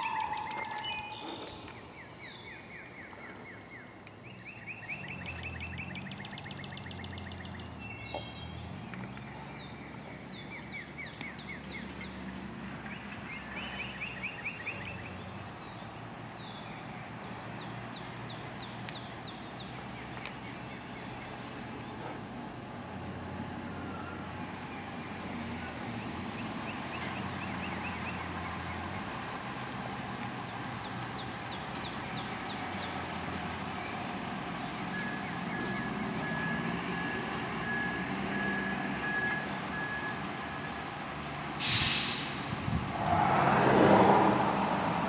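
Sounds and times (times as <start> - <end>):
birds trilling: 0.0 - 1.8.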